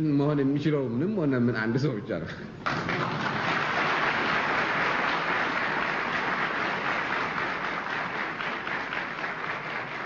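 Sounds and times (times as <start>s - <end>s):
audience applauding: 2.6s - 10.0s.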